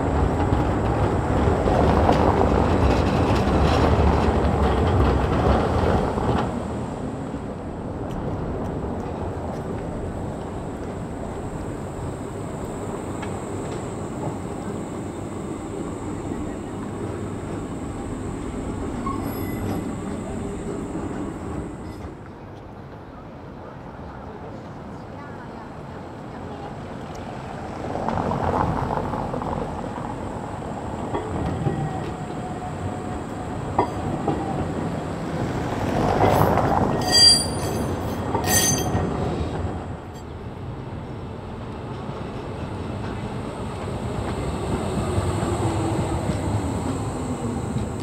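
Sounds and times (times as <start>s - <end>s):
tram wheels rumbling on rails: 0.0s - 48.0s
high-pitched whine: 10.0s - 22.1s
tram wheels squealing: 10.1s - 22.2s, 29.6s - 40.4s.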